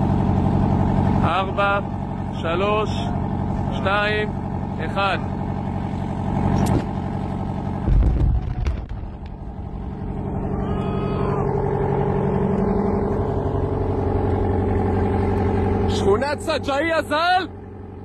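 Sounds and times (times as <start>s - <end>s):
vehicle engine running: 0.0s - 18.0s
sharp explosive cracks: 7.8s - 9.7s
deep explosion boom: 7.8s - 11.3s.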